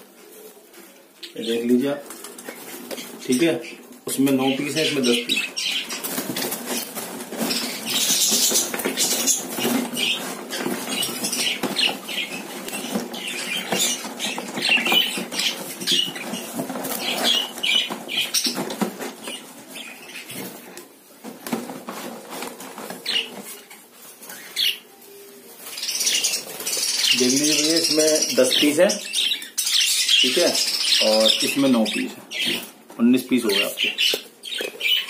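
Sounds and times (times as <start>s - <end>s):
birds fluttering in wire cage: 4.2s - 20.7s
bird chirps: 23.0s - 32.7s.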